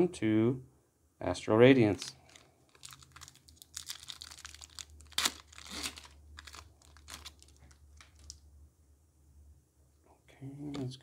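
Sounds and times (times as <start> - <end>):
foil wrapper tearing and crinkling: 2.2 - 8.4.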